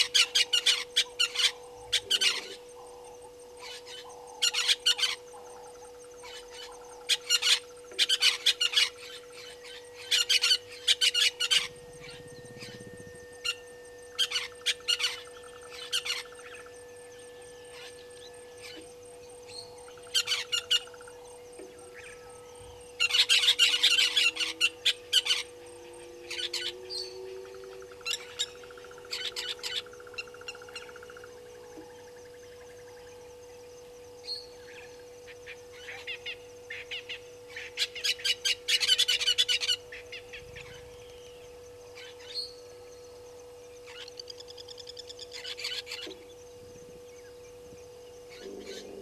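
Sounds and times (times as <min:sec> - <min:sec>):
faint steady hum: 0:00.0 - 0:49.0.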